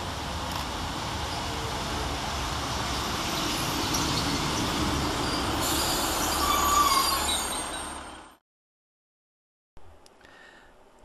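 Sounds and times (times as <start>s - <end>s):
train wheels and engines rumbling: 0.0s - 8.4s
high brake squeal: 3.5s - 8.4s.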